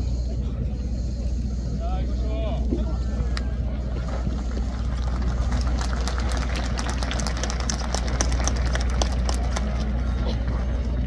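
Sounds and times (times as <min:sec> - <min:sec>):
spectators clapping: 0:04.0 - 0:10.0.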